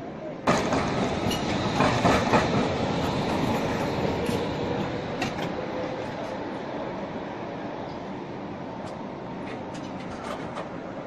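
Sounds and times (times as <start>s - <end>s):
tram rumble: 0.0s - 11.0s
tram wheels clacking on track: 0.4s - 6.7s, 8.8s - 11.0s.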